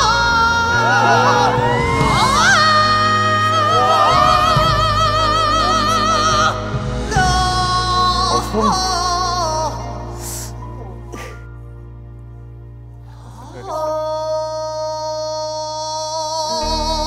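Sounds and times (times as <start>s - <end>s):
man singing high notes with vibrato: 13.6s - 17.0s.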